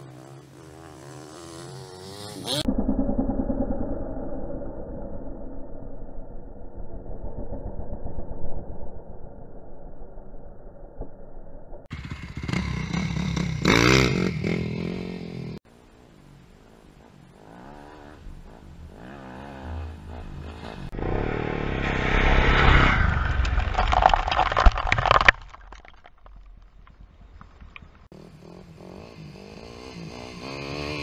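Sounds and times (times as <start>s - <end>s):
dirt bike engine revving: 0.0s - 2.7s, 11.9s - 15.6s, 16.6s - 23.4s, 28.1s - 31.0s
dirt clods pattering: 22.9s - 28.0s.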